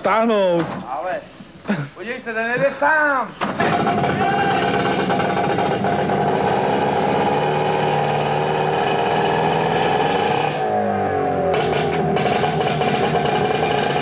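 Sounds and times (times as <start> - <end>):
car engine running: 3.6 - 14.0.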